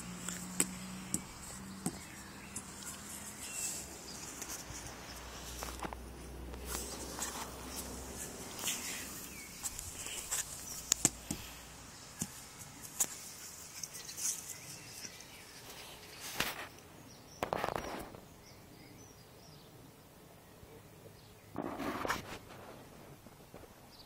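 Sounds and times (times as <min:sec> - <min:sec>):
rustling and scuffling in grass: 0:00.0 - 0:16.8.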